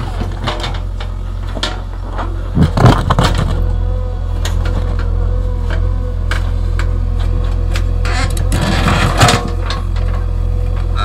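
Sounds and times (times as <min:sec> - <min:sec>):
diesel engine running under load: 0:00.0 - 0:11.0
steady whine: 0:00.0 - 0:11.0
bucket scraping earth and stones: 0:02.0 - 0:03.6, 0:08.2 - 0:09.9.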